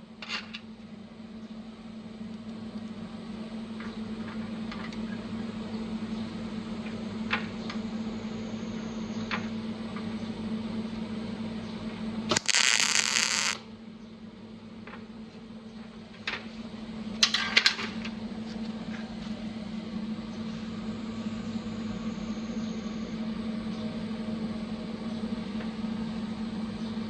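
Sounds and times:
welder hissing burst: 12.3s - 13.6s
welding machine hum: 12.3s - 13.7s.

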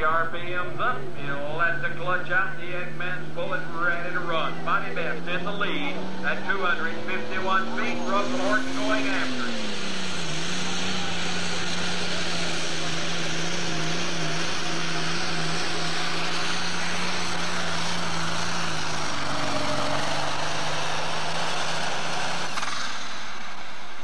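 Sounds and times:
diesel tractor engine roaring: 0.0s - 24.0s.

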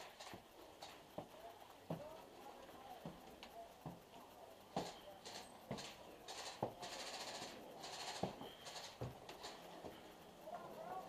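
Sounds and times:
footsteps on concrete floor: 1.9s - 2.2s, 4.7s - 5.0s, 5.7s - 5.9s, 8.2s - 10.0s.

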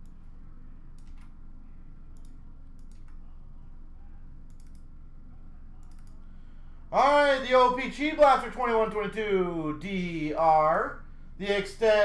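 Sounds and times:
low steady hum: 0.0s - 12.0s
computer mouse and keyboard clicks: 1.0s - 1.4s, 4.5s - 4.8s, 5.8s - 6.2s.

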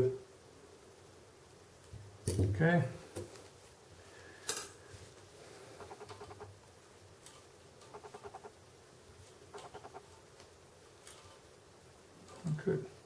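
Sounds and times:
thread squeaking on bowstring: 5.8s - 6.5s, 7.8s - 8.5s, 9.5s - 10.2s.

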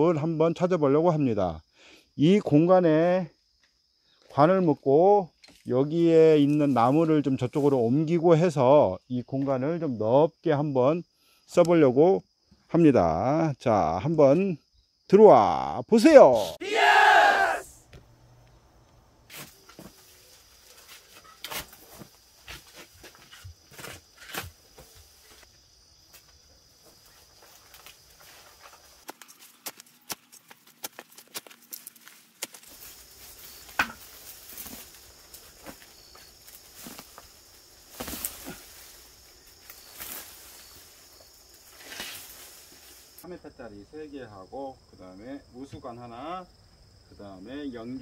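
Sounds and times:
high insect buzz: 16.8s - 43.3s
stems rustling: 19.3s - 25.5s, 26.1s - 43.2s
soil crumbling: 27.4s - 39.0s
roots tearing loose: 29.0s - 35.8s, 36.4s - 39.0s
hoe scraping soil and stones: 41.7s - 42.9s.

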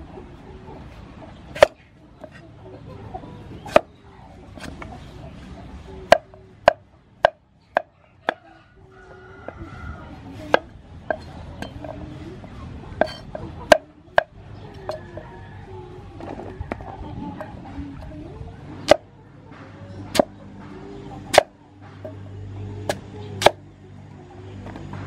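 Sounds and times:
cleaver chopping on wooden board: 1.5s - 1.8s, 3.7s - 3.9s, 6.1s - 8.4s, 20.1s - 20.3s, 21.3s - 21.6s, 22.9s - 23.6s.

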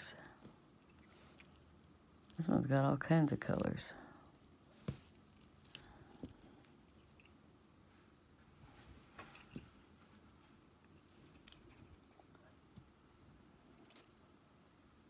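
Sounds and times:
beads clicking together: 0.7s - 7.4s, 13.7s - 14.4s.

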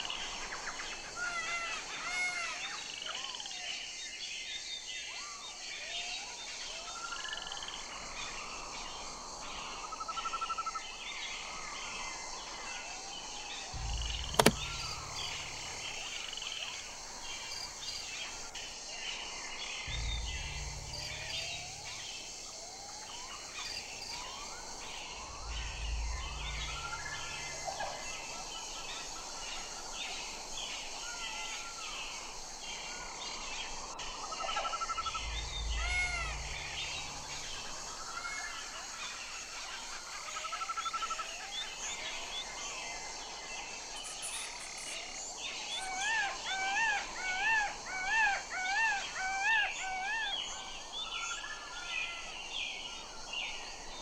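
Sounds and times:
sharp click: 13.8s - 18.6s
short low rumbles: 13.8s - 18.7s, 19.9s - 28.6s, 34.9s - 38.6s.

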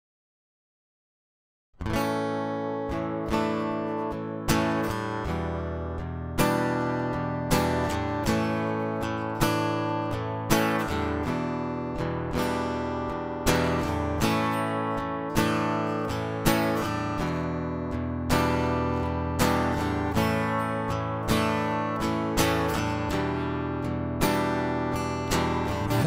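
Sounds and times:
solo acoustic guitar chords: 1.8s - 26.0s.

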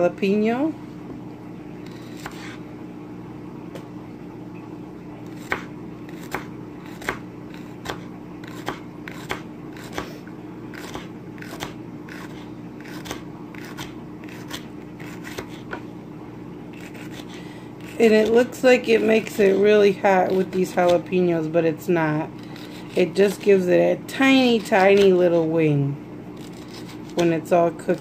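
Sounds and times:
steady low hum: 0.0s - 28.0s
knife chopping on cutting board: 1.9s - 2.6s, 5.3s - 10.1s, 10.7s - 15.8s.

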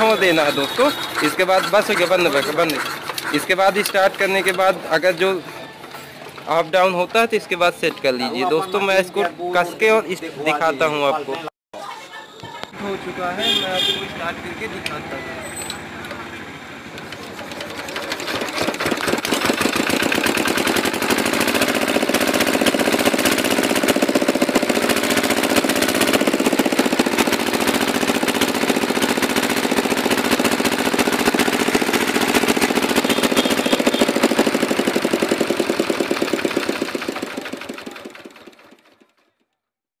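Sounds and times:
diesel engine knocking: 0.4s - 6.5s, 16.9s - 39.0s.

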